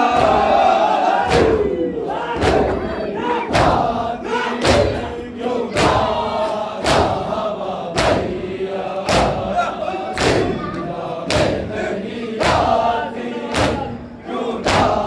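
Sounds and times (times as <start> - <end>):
men chanting together: 0.0 - 15.0
hands slapping chests in unison: 0.1 - 4.0, 4.6 - 14.0, 14.6 - 15.0.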